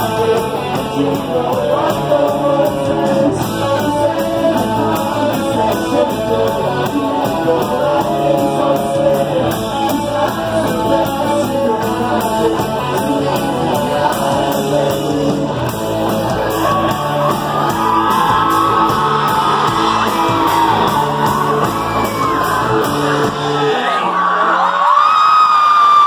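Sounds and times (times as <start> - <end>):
rock band playing live: 0.0 - 24.0
crowd yelling and cheering: 0.0 - 26.0.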